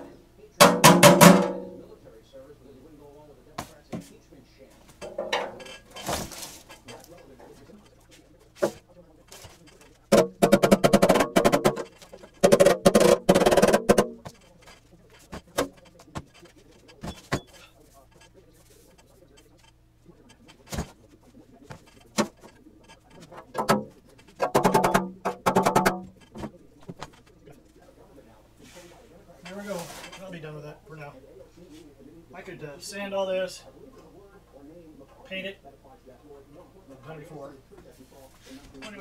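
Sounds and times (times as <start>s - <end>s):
metal pan knocking on wooden bench: 0.6s - 1.7s, 10.1s - 14.4s, 23.2s - 26.4s.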